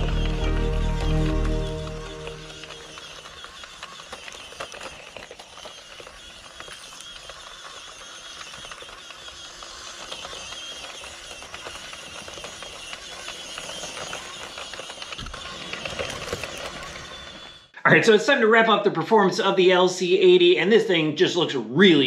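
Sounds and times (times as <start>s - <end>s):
tyres crackling over pebbles: 0.0s - 17.7s.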